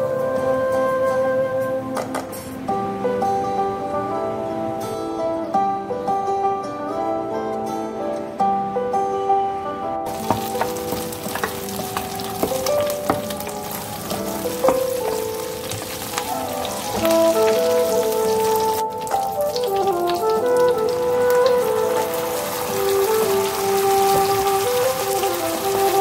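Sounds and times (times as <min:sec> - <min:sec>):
background music: 0:00.0 - 0:26.0
leaves and chillies sizzling in oil: 0:10.1 - 0:26.0.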